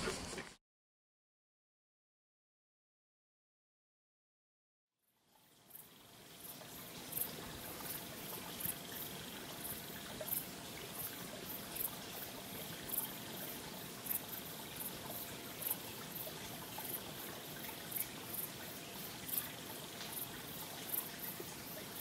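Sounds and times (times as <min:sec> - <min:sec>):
water trickling and lapping: 0:05.2 - 0:22.0
small water splashes: 0:05.4 - 0:22.0.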